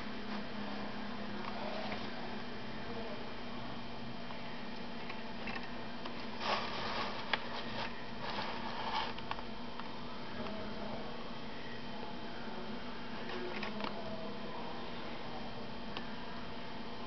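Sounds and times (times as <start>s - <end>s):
steady background hum: 0.0s - 17.0s
hand rubbing scrapes: 6.3s - 9.2s.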